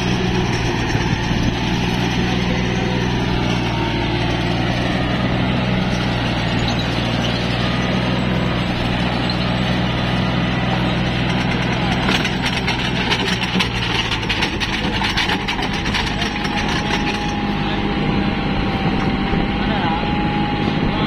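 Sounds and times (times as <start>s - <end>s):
tractor diesel engine running: 0.0s - 21.0s
auger boring into mud: 11.0s - 17.5s.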